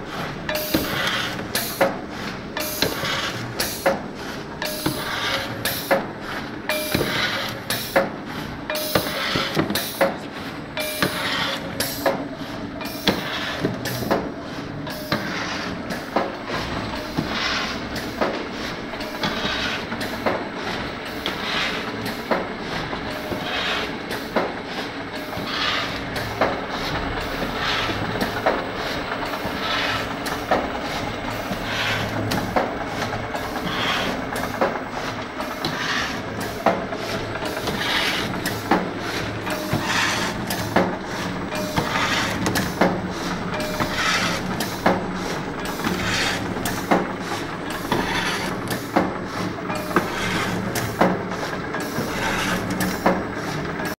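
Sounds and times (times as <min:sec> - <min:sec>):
machine clicks and knocks: 0:00.0 - 0:54.0.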